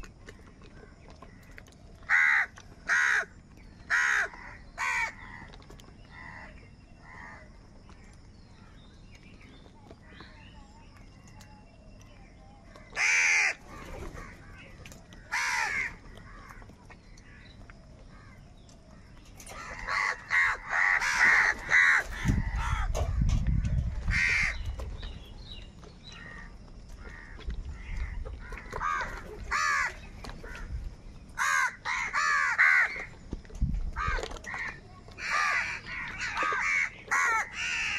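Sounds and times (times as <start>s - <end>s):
crows cawing: 2.1s - 3.3s, 3.9s - 5.5s, 12.9s - 16.7s, 19.5s - 23.0s, 24.1s - 24.6s, 26.2s - 30.7s, 31.4s - 33.1s, 34.0s - 37.9s.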